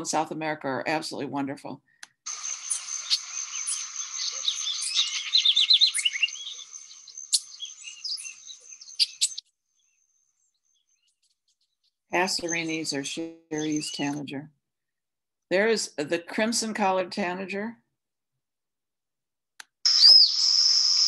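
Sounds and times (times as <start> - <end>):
high-pitched tone and hiss: 2.3 - 8.4, 19.9 - 21.0
sharp bird calls: 2.3 - 11.6, 19.9 - 21.0
bird chirping: 2.3 - 14.4, 19.9 - 21.0.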